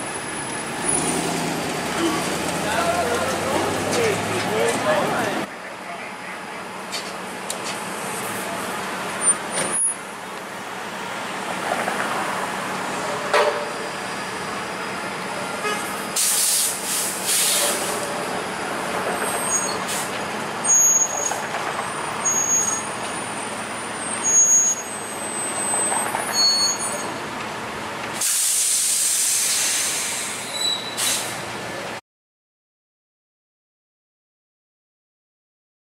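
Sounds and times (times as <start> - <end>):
street traffic: 0.0 - 32.0
streetcar rolling: 0.0 - 32.0
air hiss: 16.2 - 18.0, 28.2 - 31.4.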